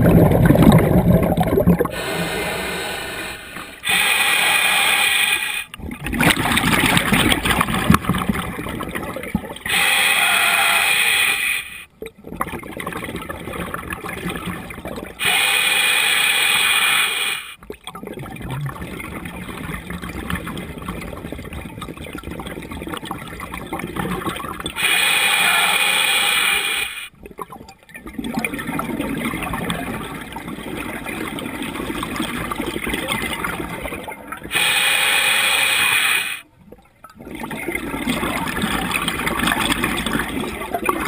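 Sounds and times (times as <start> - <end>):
exhalation bubbling: 0.0 - 4.0, 17.9 - 25.9
regulator air hiss: 2.0 - 5.7, 9.7 - 11.9, 15.2 - 17.6, 24.8 - 27.1, 34.5 - 36.4.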